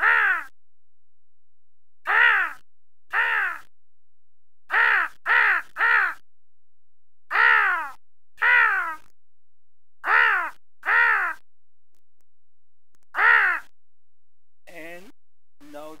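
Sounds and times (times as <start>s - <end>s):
person imitating crow caws: 0.0s - 0.5s, 2.0s - 3.7s, 4.7s - 6.2s, 7.3s - 9.1s, 10.0s - 11.4s, 13.1s - 13.7s.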